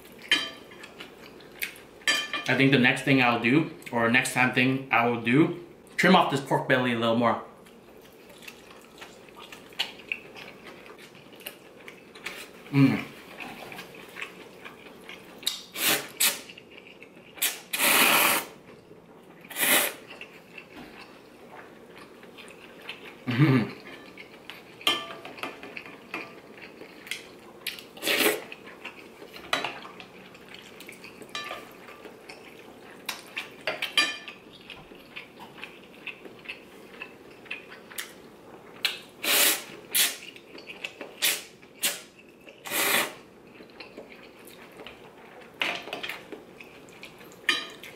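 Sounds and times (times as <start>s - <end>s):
person slurping noodles: 17.4s - 18.6s, 19.5s - 20.0s, 28.0s - 28.5s, 39.2s - 40.2s, 42.6s - 43.2s.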